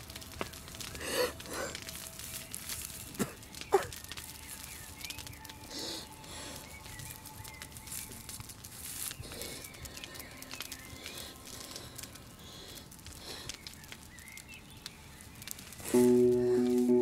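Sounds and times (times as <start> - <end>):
music sustained low chord: 0.0 - 9.1, 9.7 - 12.3, 15.8 - 17.0
bird chirps: 3.4 - 11.5, 13.5 - 17.0.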